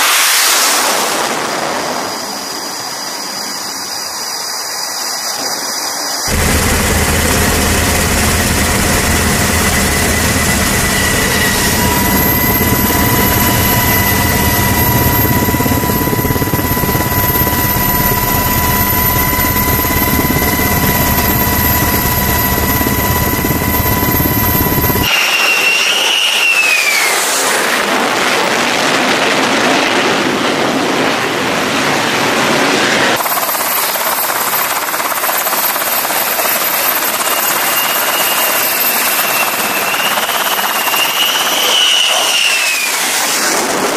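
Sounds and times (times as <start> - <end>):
jet turbine engines whining: 0.0 - 43.9
rush of jet noise: 0.0 - 43.9
whine falling in pitch: 6.3 - 27.2, 36.9 - 43.6.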